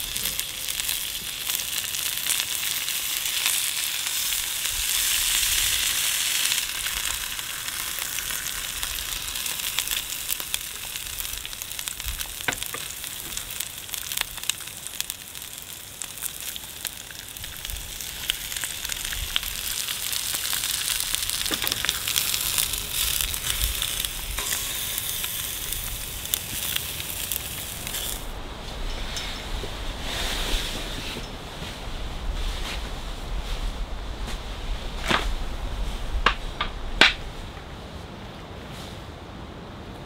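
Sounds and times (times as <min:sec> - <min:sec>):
eggs sizzling on griddle: 0:00.0 - 0:28.3.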